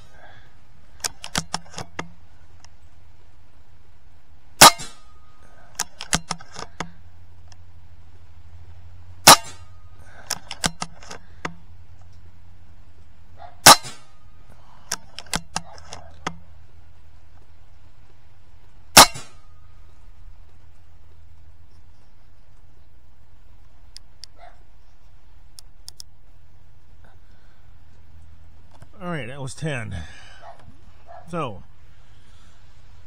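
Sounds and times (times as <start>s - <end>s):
air rifle shots: 4.6s - 7.0s, 9.2s - 11.6s, 13.6s - 14.2s, 18.9s - 19.6s.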